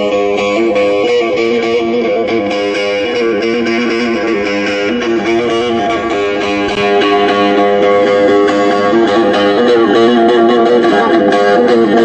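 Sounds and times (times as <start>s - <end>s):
plucked lute folk melody: 0.0s - 12.0s
ringing drone note: 0.0s - 12.0s.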